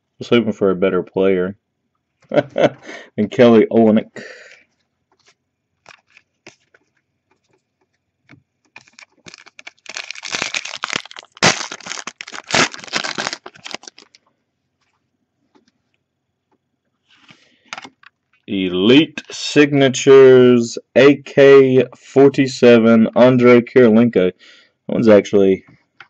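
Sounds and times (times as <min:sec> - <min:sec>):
cards shuffling clicks: 0:05.2 - 0:06.9, 0:08.7 - 0:14.2
foil crinkling: 0:05.8 - 0:06.9, 0:08.7 - 0:14.2.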